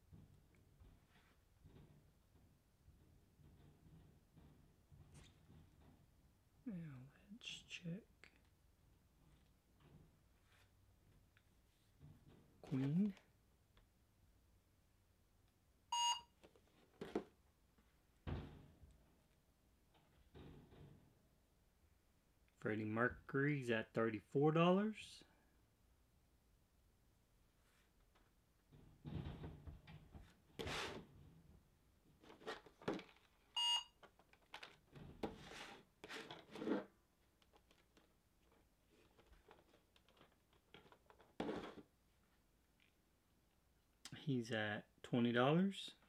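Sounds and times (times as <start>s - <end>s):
short electronic beep: 15.9s - 16.2s
smartphone beep: 15.9s - 16.3s, 33.6s - 33.9s
faint handling noises: 29.8s - 43.6s.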